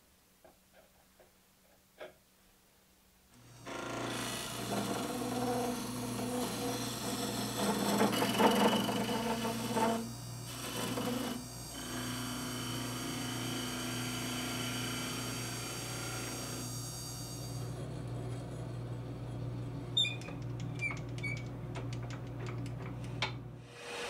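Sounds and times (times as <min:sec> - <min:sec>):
wood lathe motor humming: 0:03.4 - 0:19.5
turning tool scraping wood: 0:03.6 - 0:15.0.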